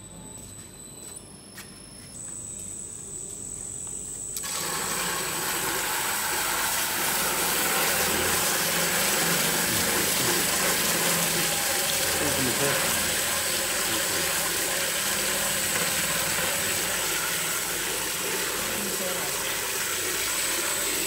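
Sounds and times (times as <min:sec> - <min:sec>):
short electronic beeps: 0:00.0 - 0:02.6
thin high whine: 0:00.0 - 0:04.6, 0:05.2 - 0:21.0
mixer motor churning liquid: 0:04.4 - 0:21.0.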